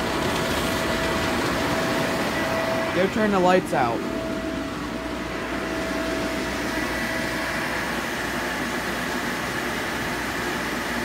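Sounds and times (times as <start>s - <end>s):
inflator blower fan whoosh: 0.0s - 11.0s.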